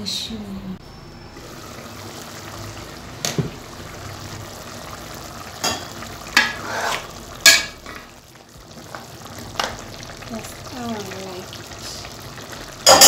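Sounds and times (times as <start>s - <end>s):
stew sizzling hiss: 1.4s - 7.9s, 8.6s - 12.9s
metal spoon scraping a pot: 6.4s - 7.6s.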